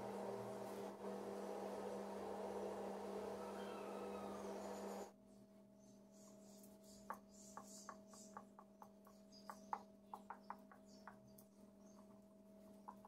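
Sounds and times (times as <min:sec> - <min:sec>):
electrical hum: 0:00.0 - 0:05.1
hands tapping dough on a mat: 0:07.0 - 0:13.0.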